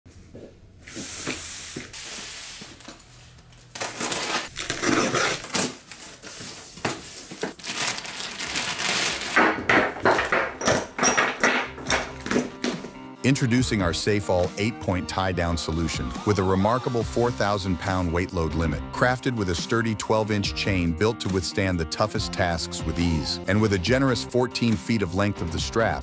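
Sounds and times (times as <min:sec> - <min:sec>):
plastic bag crinkling: 0:03.4 - 0:09.7
chain links clinking: 0:09.9 - 0:12.2.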